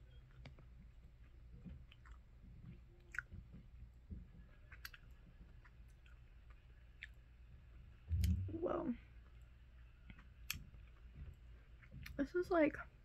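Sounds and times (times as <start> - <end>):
faint chewing: 0.1 - 7.3.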